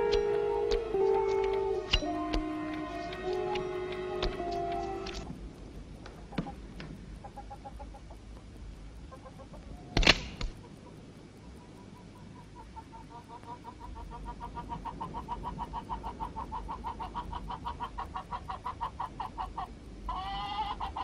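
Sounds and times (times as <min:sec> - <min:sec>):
hens clucking: 0:00.0 - 0:05.2, 0:07.2 - 0:08.4, 0:09.0 - 0:09.9, 0:10.6 - 0:21.0
sharp clicks: 0:10.0 - 0:10.6.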